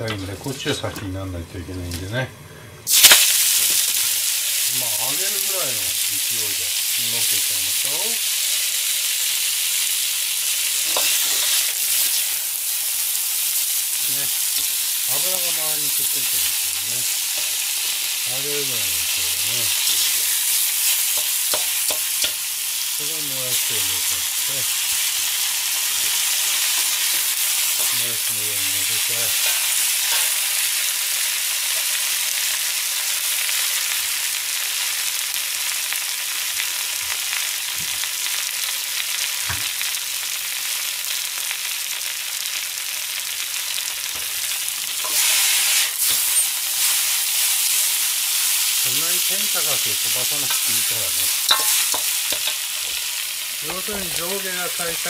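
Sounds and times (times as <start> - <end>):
vegetables sizzling in hot oil: 2.9 - 55.0
metal ladle clicking on wok: 51.5 - 52.6.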